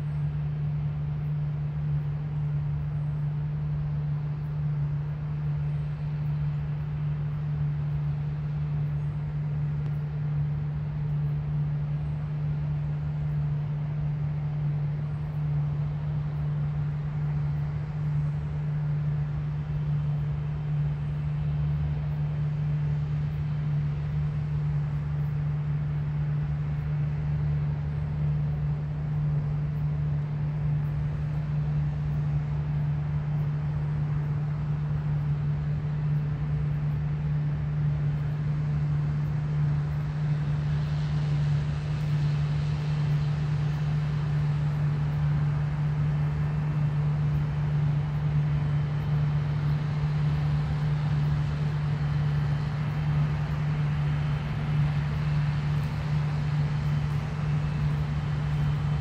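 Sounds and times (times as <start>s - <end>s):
combine harvester droning: 12.1s - 59.0s.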